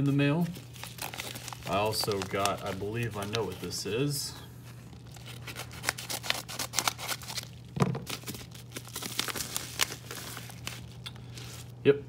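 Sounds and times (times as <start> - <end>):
paper mailer crackling and tearing: 0.0 - 4.1, 4.9 - 11.7.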